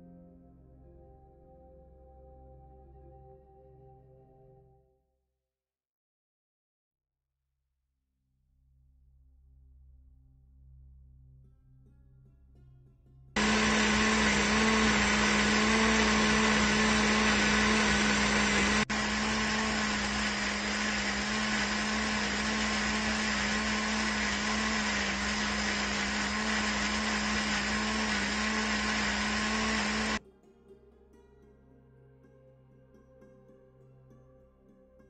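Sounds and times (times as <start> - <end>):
electric blender running: 13.4 - 30.2.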